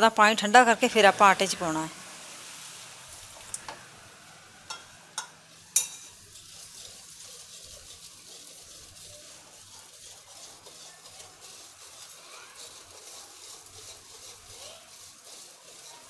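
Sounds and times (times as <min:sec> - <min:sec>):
whisk stirring in bowl: 0:04.7 - 0:16.0.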